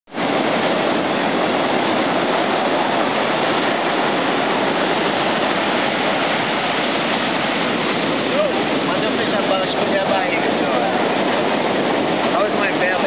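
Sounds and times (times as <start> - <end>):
ocean surf breaking: 0.1 - 13.0.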